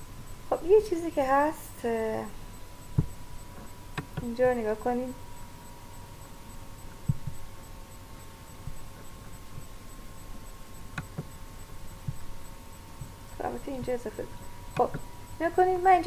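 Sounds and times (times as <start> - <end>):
steady electrical hum: 0.0 - 16.0
computer mouse clicks: 7.0 - 7.4, 10.9 - 11.4.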